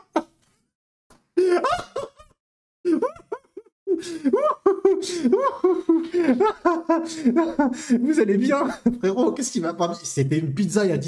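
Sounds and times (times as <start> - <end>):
man laughing: 1.4 - 2.3, 2.9 - 9.3.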